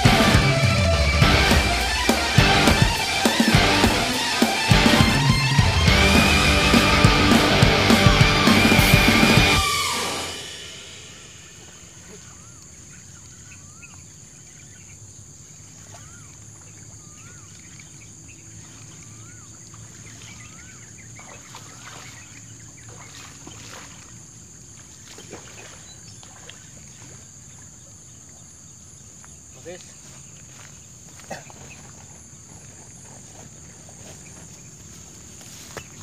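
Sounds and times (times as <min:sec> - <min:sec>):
insect drone: 0:00.0 - 0:36.0.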